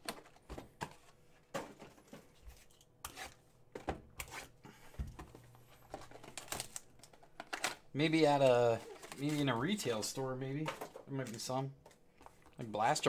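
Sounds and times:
plastic wrap crinkling and tearing: 0:05.9 - 0:10.1.

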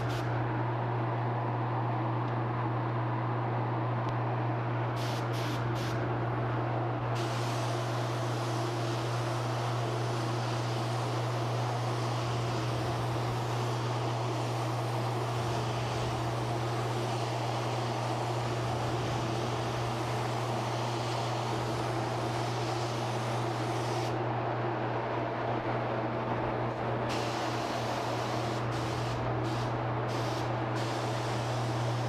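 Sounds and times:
low hum of air supply: 0:00.0 - 0:32.0
spray gun hissing: 0:05.0 - 0:06.0, 0:07.2 - 0:24.2, 0:27.1 - 0:32.0.

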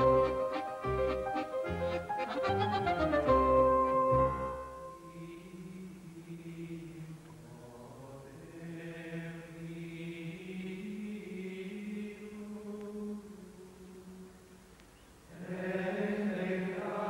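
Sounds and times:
instrumental title music: 0:00.0 - 0:05.0
slow vocal chant: 0:04.7 - 0:17.0.

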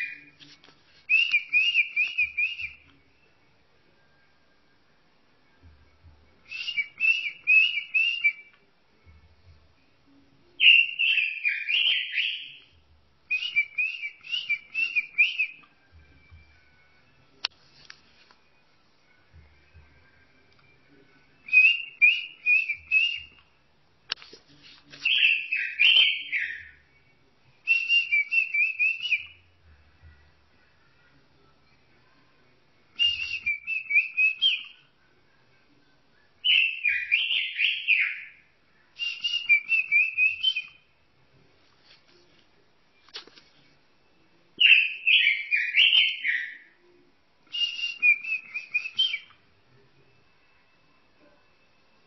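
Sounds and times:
robin singing: 0:00.0 - 0:00.5, 0:01.1 - 0:03.0, 0:06.4 - 0:08.6, 0:10.5 - 0:15.7, 0:21.2 - 0:23.4, 0:24.9 - 0:30.2, 0:33.0 - 0:35.0, 0:36.1 - 0:40.9, 0:44.6 - 0:46.8, 0:47.5 - 0:49.4
bird singing warbling phrases: 0:10.6 - 0:12.7, 0:25.0 - 0:26.8, 0:36.4 - 0:38.4, 0:44.6 - 0:46.7.

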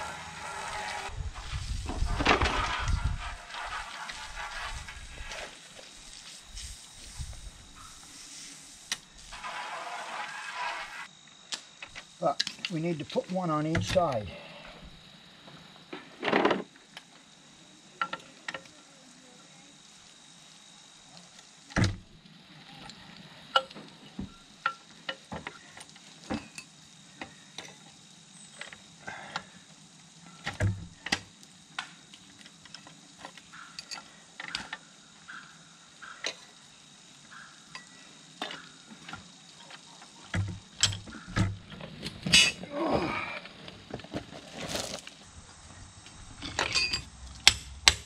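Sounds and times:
metal clanks and rattle: 0:01.9 - 0:05.5, 0:46.4 - 0:48.0
metal clinks and knocks: 0:46.4 - 0:47.1.

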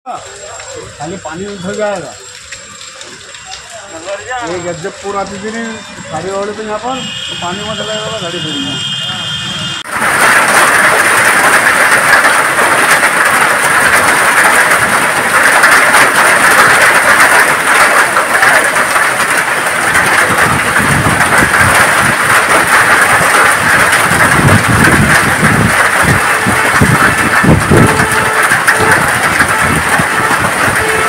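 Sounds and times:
hailstones ticking: 0:00.1 - 0:08.4, 0:09.8 - 0:31.0
heavy rain: 0:00.1 - 0:31.0
low rumbling gusts: 0:18.3 - 0:31.0.

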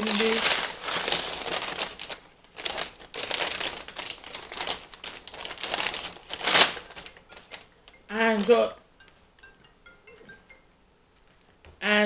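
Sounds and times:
paper bag crinkling: 0:00.0 - 0:08.7.

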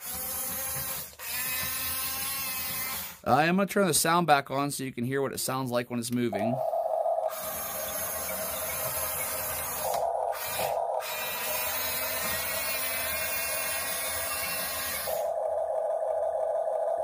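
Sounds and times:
toy motors whirring and grinding: 0:00.0 - 0:03.2
toy sound module hum: 0:06.3 - 0:17.0.

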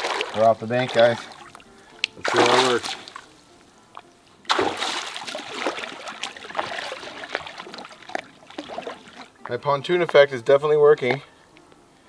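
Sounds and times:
water splashing: 0:00.0 - 0:09.6.

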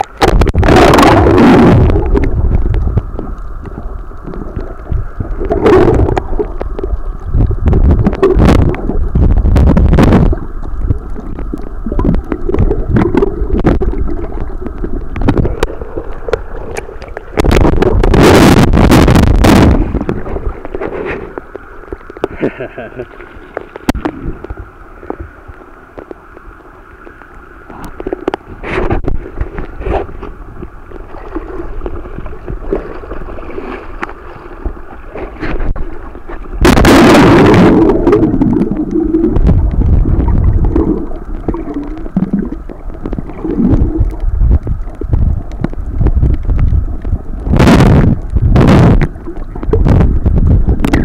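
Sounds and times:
sea water splashing and sloshing: 0:00.0 - 0:51.0
water gurgling: 0:00.0 - 0:51.0
loud splash: 0:36.6 - 0:41.0.

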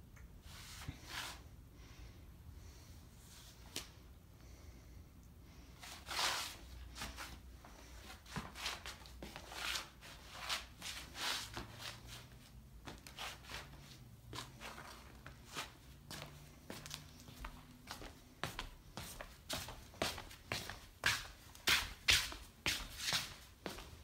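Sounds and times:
footsteps scuffing on hardwood floor: 0:06.1 - 0:24.0.

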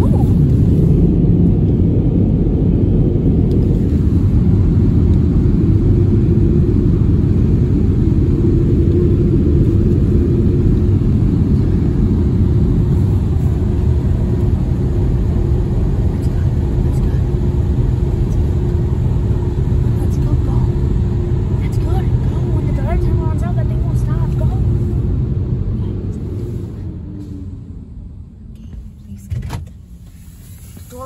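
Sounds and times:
car wash rumble: 0:00.0 - 0:31.0.

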